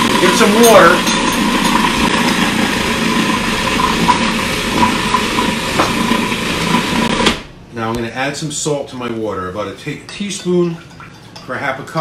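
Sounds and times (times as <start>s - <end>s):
food processor running: 0.0s - 7.5s.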